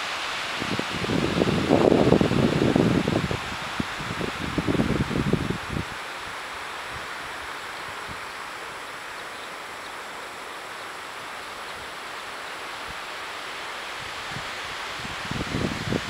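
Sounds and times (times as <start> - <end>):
outdoor ambience hiss: 0.0 - 16.0.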